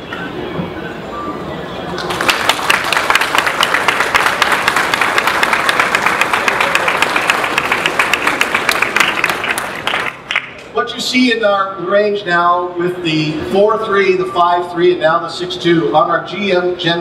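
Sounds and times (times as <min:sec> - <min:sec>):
audience applauding: 0:02.0 - 0:10.6.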